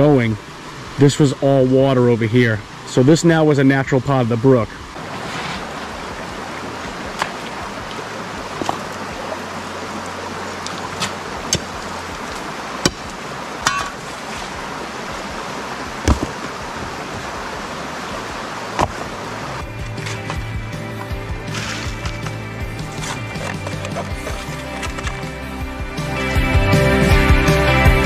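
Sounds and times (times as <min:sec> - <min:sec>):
brook water running: 0:00.0 - 0:28.0
stones clicking and knocking: 0:21.5 - 0:25.2.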